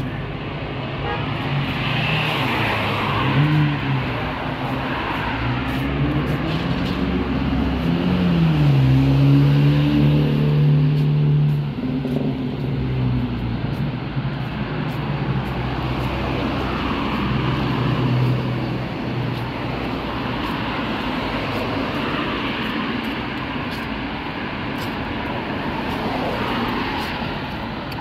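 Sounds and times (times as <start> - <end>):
cars driving past: 0.0 - 28.0.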